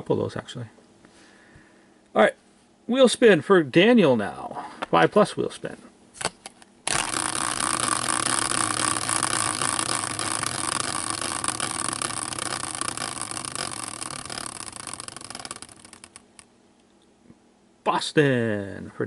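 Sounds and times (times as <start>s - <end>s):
spinning wheel whirring and ticking: 6.9s - 16.4s.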